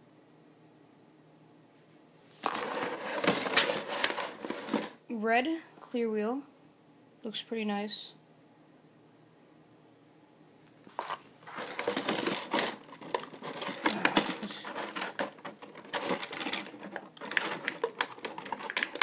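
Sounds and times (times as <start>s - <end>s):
plastic blister tray crackling: 10.9s - 19.0s.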